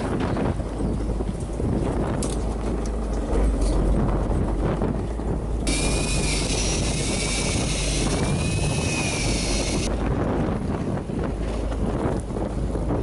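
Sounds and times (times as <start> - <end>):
boat and wind rumble: 0.0 - 13.0
electric fishing reel whine: 5.7 - 9.9.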